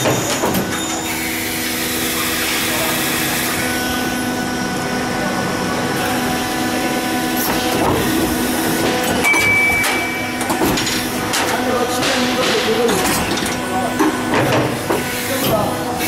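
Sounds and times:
machine humming: 0:00.0 - 0:16.0
short high beep: 0:09.2 - 0:10.5.

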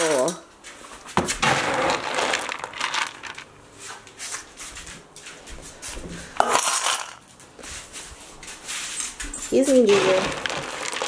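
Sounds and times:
dry kibble rattling in a scoop: 0:01.4 - 0:03.5, 0:06.4 - 0:07.2, 0:09.5 - 0:11.0
scoop clattering: 0:01.5 - 0:03.5, 0:06.4 - 0:07.2, 0:09.9 - 0:11.0.

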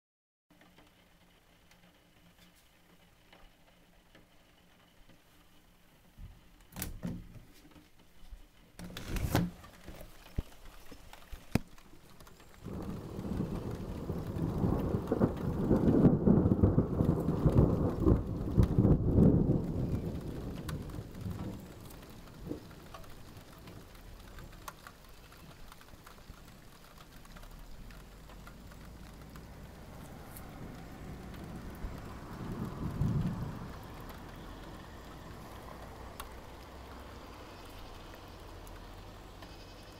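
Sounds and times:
rain falling: 0:00.5 - 0:39.9
thunder rumbling: 0:12.2 - 0:39.6.

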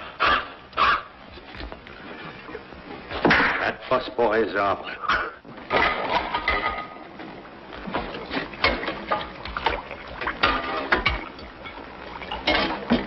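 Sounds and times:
pots and dishes clattering: 0:03.1 - 0:03.8, 0:05.1 - 0:13.0.

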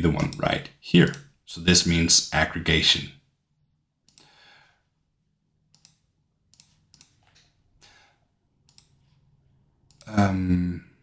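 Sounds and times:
faint computer mouse clicks: 0:05.7 - 0:07.5, 0:08.7 - 0:09.0.

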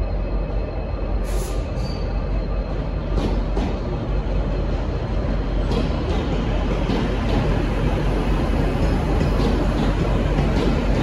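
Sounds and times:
diesel trains rumbling: 0:00.0 - 0:11.0
short high hisses: 0:01.2 - 0:02.0.

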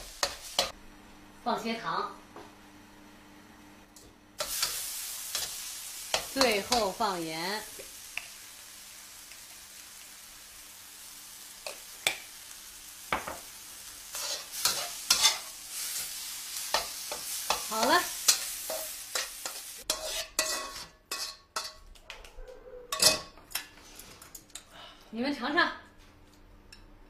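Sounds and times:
food sizzling in a wok: 0:00.0 - 0:00.8, 0:04.4 - 0:21.8
spatula scraping a wok: 0:04.4 - 0:07.0, 0:14.1 - 0:21.8.

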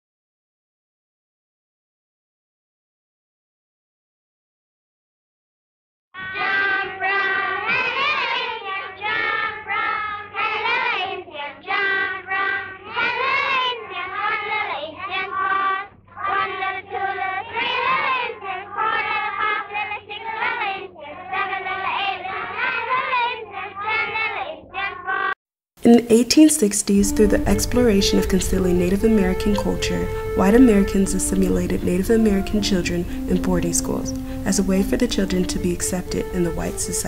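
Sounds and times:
low hum: 0:26.8 - 0:37.0.

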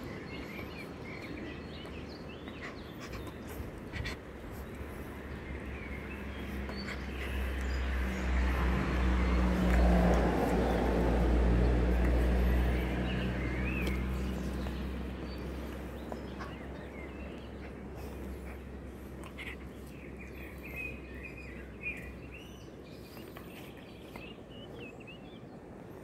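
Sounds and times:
car passing by: 0:05.2 - 0:18.8.

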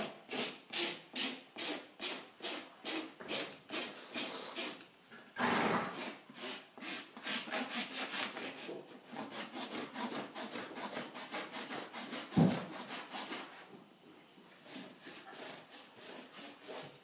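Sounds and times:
rasp filing hoof: 0:05.4 - 0:13.5, 0:14.7 - 0:17.0.

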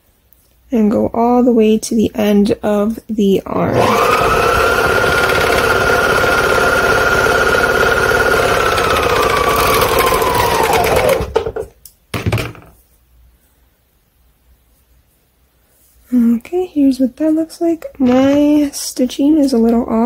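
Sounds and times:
serger sewing machine whining: 0:03.7 - 0:11.7.

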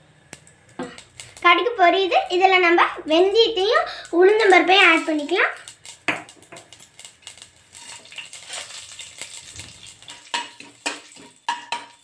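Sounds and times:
seeds popping in hot oil: 0:00.2 - 0:12.0
metal ladle knocking on pot: 0:10.2 - 0:12.0.

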